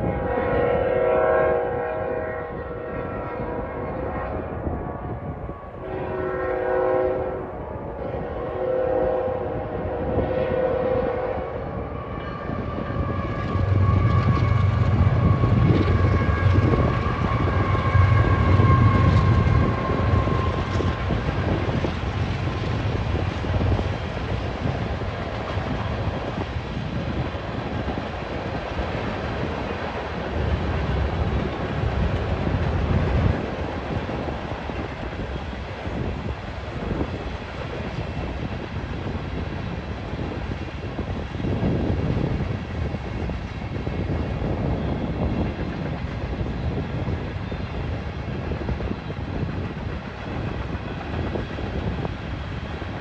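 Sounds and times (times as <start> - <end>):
train air horn blasts: 0.0 - 22.7
locomotive engine rumble: 8.0 - 53.0
freight cars rolling on rails: 10.5 - 53.0.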